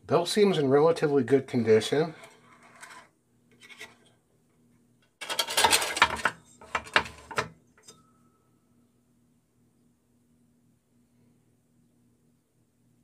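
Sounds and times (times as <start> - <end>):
bandsaw clattering and scraping: 5.2 - 7.3.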